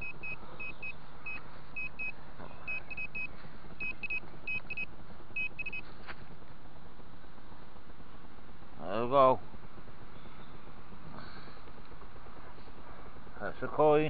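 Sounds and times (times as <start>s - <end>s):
metal detector short high beeps: 2.7s - 5.8s.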